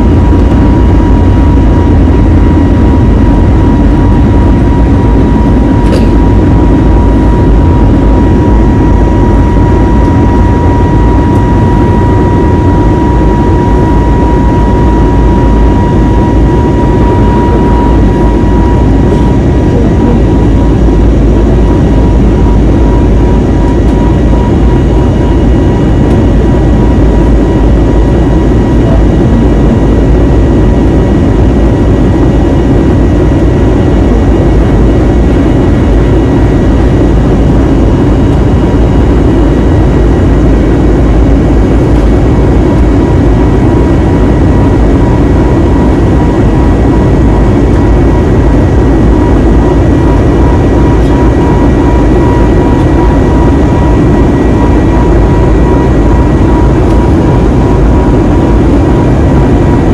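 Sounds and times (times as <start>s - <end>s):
faint high whine: 0.0s - 59.9s
jet engine and airflow noise: 0.0s - 59.9s.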